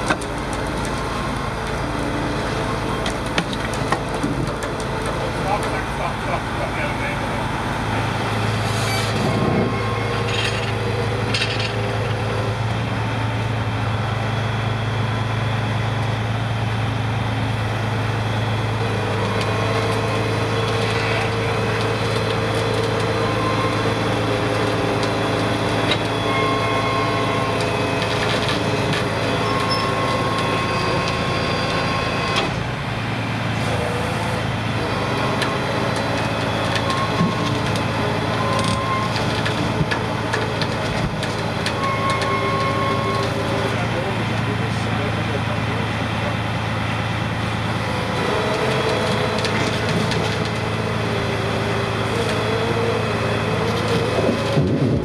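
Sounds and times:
diesel truck engine droning: 0.0s - 55.0s.

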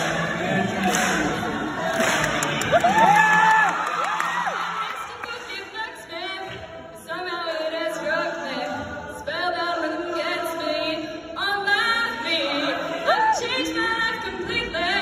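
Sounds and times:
choir singing chords: 0.0s - 3.9s.

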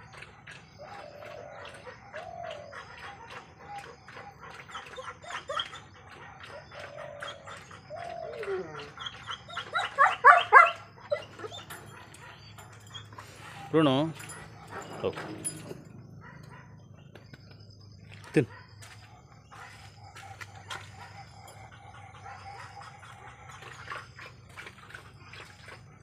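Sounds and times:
dog eating from metal bowl: 0.0s - 9.9s, 10.6s - 26.0s
dog whining: 0.8s - 17.4s
dog barking: 9.5s - 12.5s, 16.0s - 16.8s, 18.3s - 19.1s.

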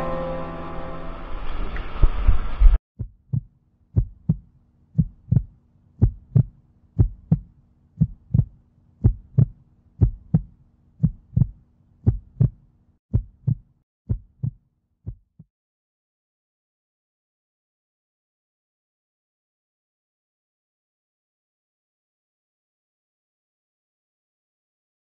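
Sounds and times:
heartbeat thumps: 3.0s - 15.5s.

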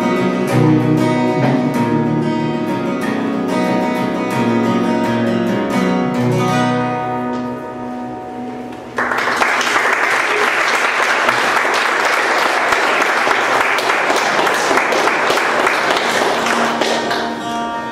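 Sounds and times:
acoustic guitar chord: 0.0s - 9.0s, 15.6s - 17.9s
small audience applauding: 9.0s - 17.8s.

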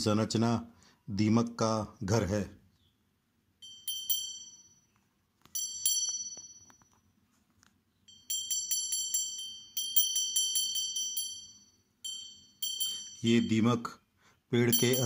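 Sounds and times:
small metal bell ringing: 3.6s - 7.2s, 8.1s - 14.0s, 14.6s - 15.0s.

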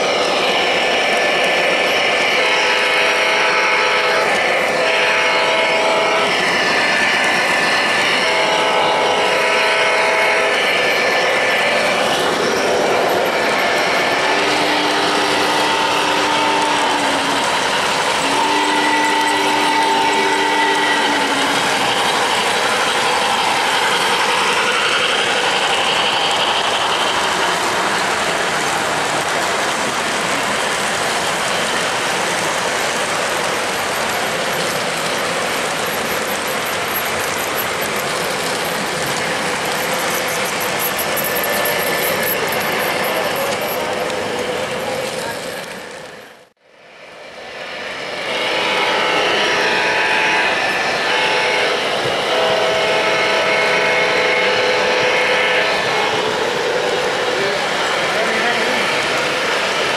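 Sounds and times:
model trains rattling and whirring: 0.0s - 59.9s
model locomotive whistle: 1.7s - 12.0s, 13.4s - 27.4s, 48.0s - 56.4s.

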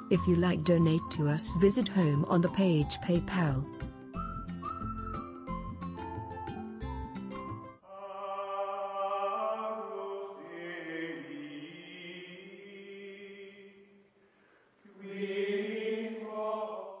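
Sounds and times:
choir-like voices chanting: 7.9s - 13.9s, 14.9s - 17.0s.

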